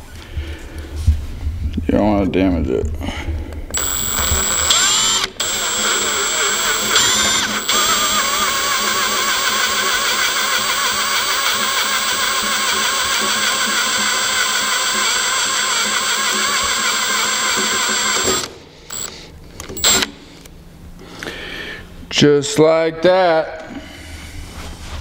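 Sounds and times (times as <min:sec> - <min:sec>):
cordless drill drilling metal: 0:03.7 - 0:19.2, 0:19.8 - 0:20.1.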